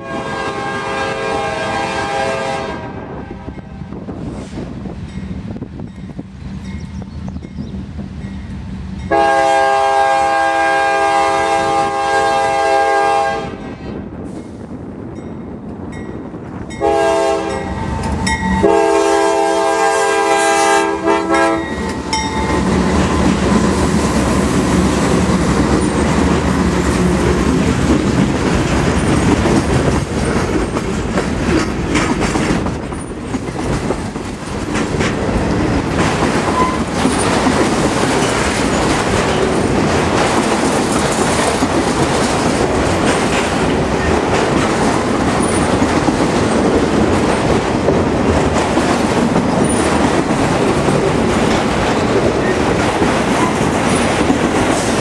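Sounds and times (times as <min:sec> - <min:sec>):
locomotive air horn blasts: 0:00.0 - 0:03.9, 0:09.1 - 0:13.9, 0:16.8 - 0:22.6
freight train passing: 0:00.0 - 0:55.0.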